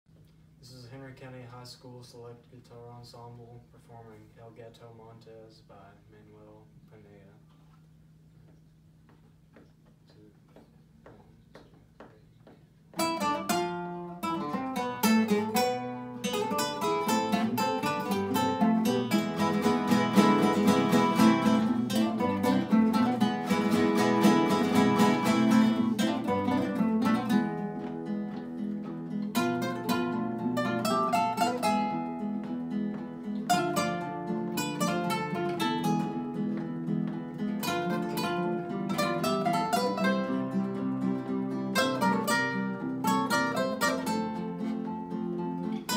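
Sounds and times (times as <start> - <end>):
classical guitars playing: 12.9 - 45.9.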